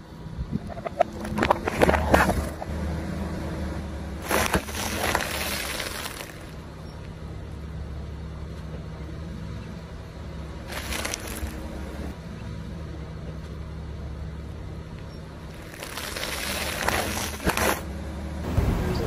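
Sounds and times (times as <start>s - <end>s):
car engine running low: 0.0s - 19.0s
plastic lids cracking under tyre: 0.8s - 2.7s, 4.2s - 6.6s, 10.7s - 11.7s, 15.5s - 17.9s
plastic sachet crushed under tyre: 4.2s - 6.6s, 10.7s - 11.7s, 15.5s - 17.9s.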